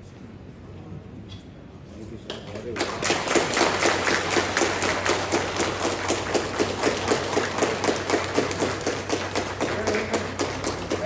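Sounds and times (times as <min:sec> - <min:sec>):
group of people clapping: 0:02.3 - 0:11.0.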